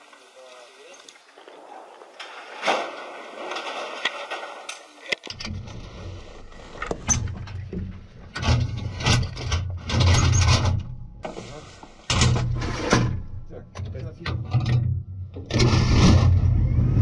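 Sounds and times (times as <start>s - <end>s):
metal clanks and knocks: 6.8s - 11.4s, 12.1s - 15.8s
tank engine droning: 15.6s - 17.0s.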